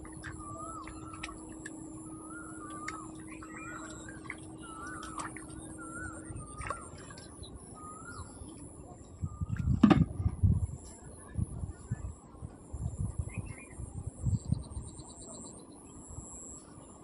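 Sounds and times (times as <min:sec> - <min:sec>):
bird warbling calls: 0:00.0 - 0:09.6
steady high whine: 0:00.0 - 0:17.0.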